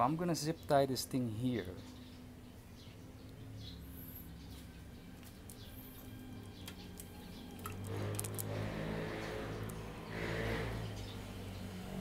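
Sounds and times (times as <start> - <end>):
mechanical noise: 5.3 - 11.5
wiring and zip ties clicking: 6.6 - 8.5.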